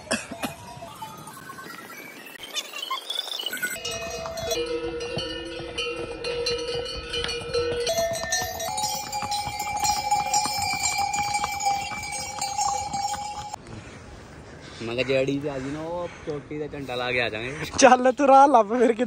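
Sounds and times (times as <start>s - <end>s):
mule bells jangling: 3.8s - 13.6s.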